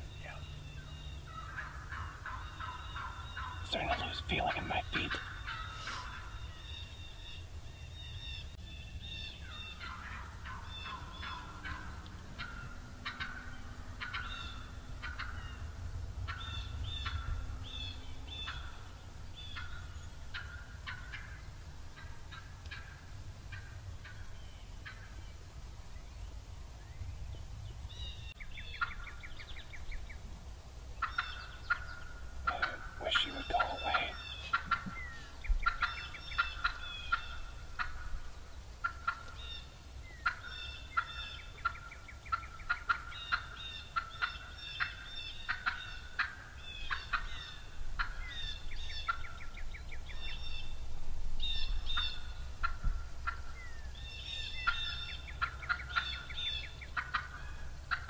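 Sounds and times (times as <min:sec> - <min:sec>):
deeper turkey call: 0:01.3 - 0:06.3, 0:32.5 - 0:37.9
turkey clucking: 0:01.3 - 0:06.3, 0:09.8 - 0:15.4, 0:31.0 - 0:38.0, 0:40.2 - 0:48.2, 0:54.6 - 0:58.0.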